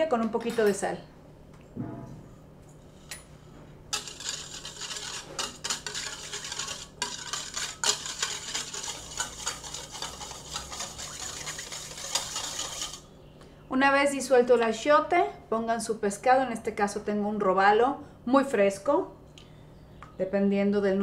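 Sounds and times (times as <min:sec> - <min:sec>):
whisk rattling in metal bowl: 0:03.9 - 0:13.1.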